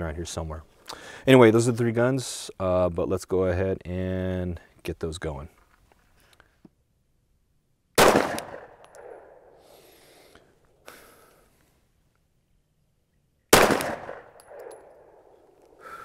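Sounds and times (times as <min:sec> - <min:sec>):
pistol shots with echo: 0:08.0 - 0:09.5, 0:13.5 - 0:15.2.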